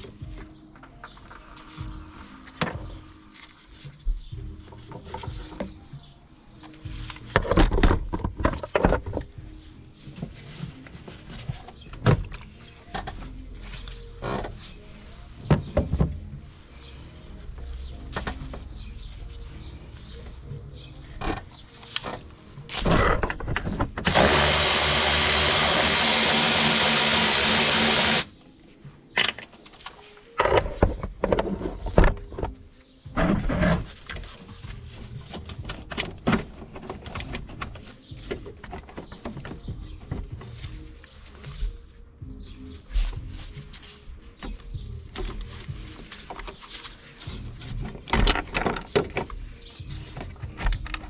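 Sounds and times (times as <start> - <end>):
cordless power tool running: 24.1 - 28.3.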